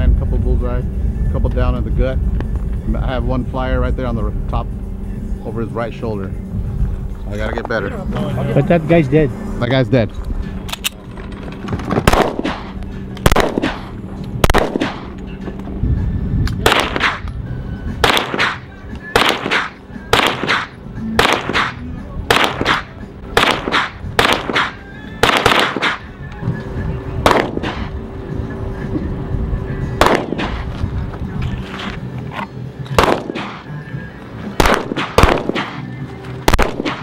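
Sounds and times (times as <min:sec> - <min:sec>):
background music: 0:00.0 - 0:37.0
pistol shots: 0:12.0 - 0:15.2, 0:16.6 - 0:17.3, 0:18.0 - 0:26.1, 0:27.2 - 0:28.0, 0:30.0 - 0:30.7, 0:33.0 - 0:33.7, 0:34.6 - 0:37.0.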